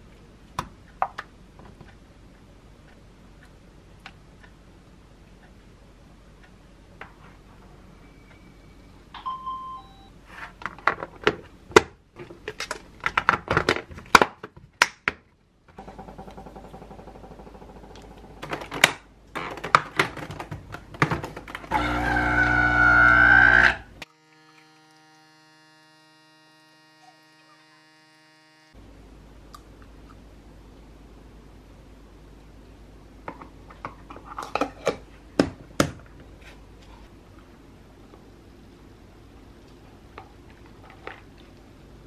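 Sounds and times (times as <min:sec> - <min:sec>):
plastic containers clacking: 0:18.4 - 0:21.7
espresso machine humming: 0:21.7 - 0:28.8.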